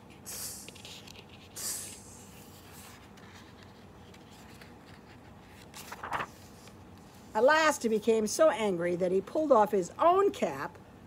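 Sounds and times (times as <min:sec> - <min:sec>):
woman hissing through teeth: 0:00.3 - 0:00.8.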